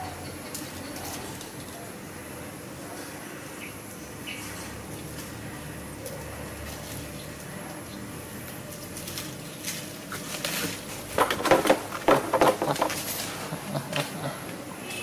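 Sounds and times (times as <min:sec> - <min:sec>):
leaves and stems rustling: 0:04.3 - 0:14.6.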